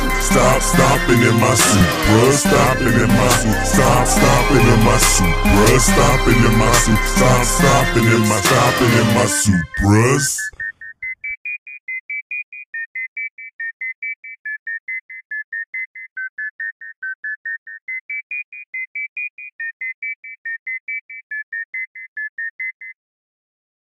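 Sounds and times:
high keyboard chords: 0.0s - 10.0s.

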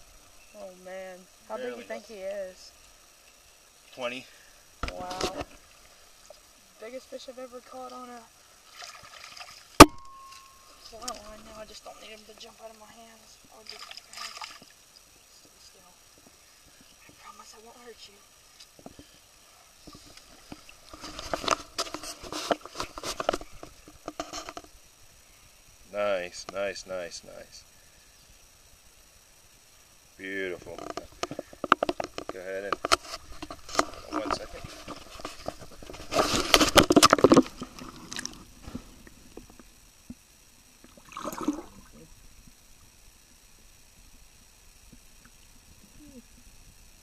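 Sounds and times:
water splashing: 7.6s - 15.0s, 35.4s - 38.8s, 40.8s - 42.2s
underwater gurgling: 36.3s - 43.0s.

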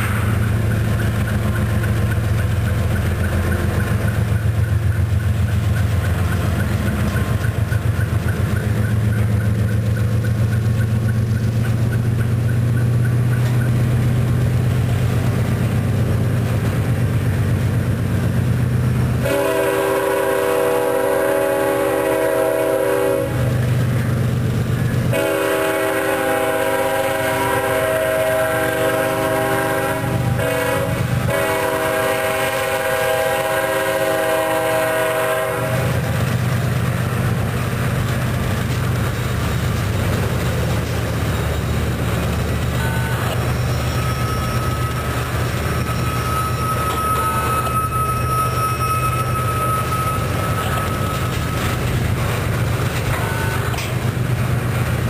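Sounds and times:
freight train wheels rumbling: 0.0s - 55.0s
diesel locomotive horn blasts: 19.2s - 23.7s, 25.1s - 36.2s, 42.6s - 51.8s, 53.1s - 53.9s.

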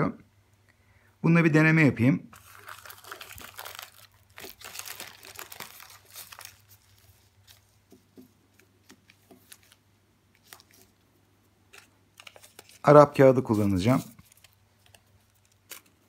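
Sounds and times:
plastic pouch crinkling: 2.3s - 7.8s, 8.8s - 11.0s, 11.7s - 16.0s.

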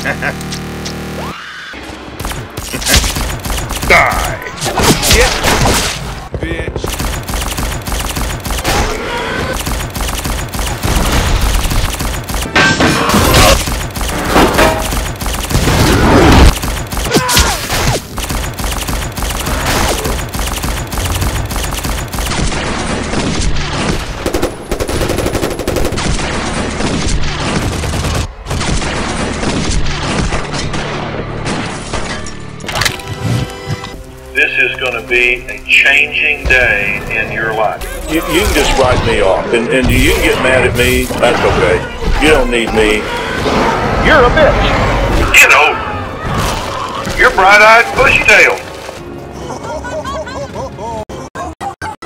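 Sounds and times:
rapid automatic gunfire: 2.2s - 4.4s, 6.7s - 30.4s.

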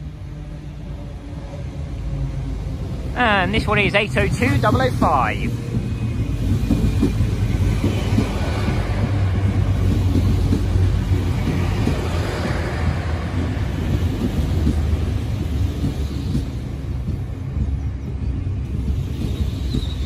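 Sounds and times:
train rumbling into station: 0.0s - 20.0s.

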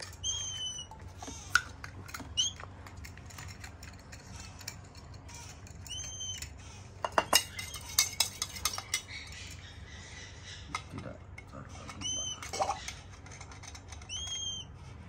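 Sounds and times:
bird chick squeaking: 0.0s - 2.6s, 5.2s - 10.9s, 11.7s - 15.0s
spatula clinking on metal jug: 3.0s - 9.1s.

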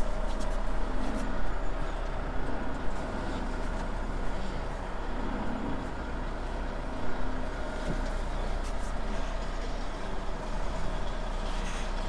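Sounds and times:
diesel engine low hum: 0.0s - 12.0s.

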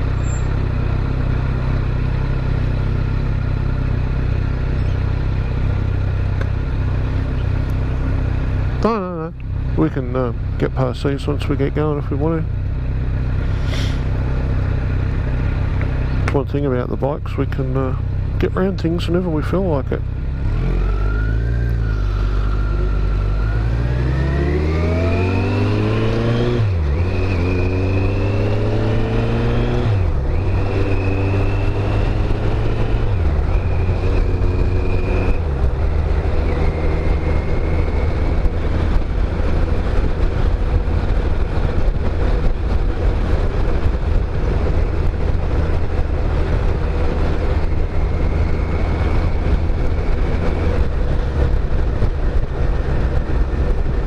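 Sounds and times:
motorcycle engine accelerating: 0.0s - 54.0s
wind noise: 21.9s - 54.0s.

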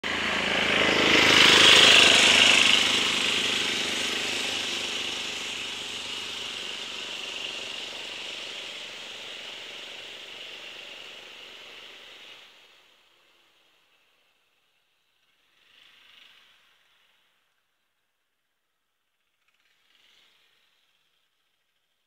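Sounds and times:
scooter engine riding away: 0.0s - 14.0s.

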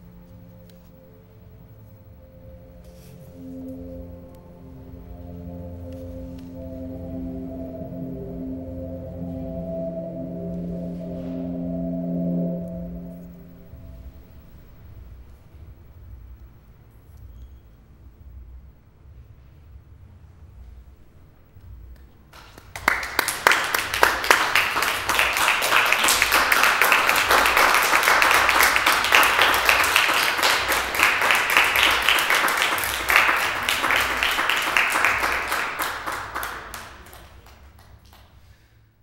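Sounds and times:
audience applauding: 22.4s - 38.6s.

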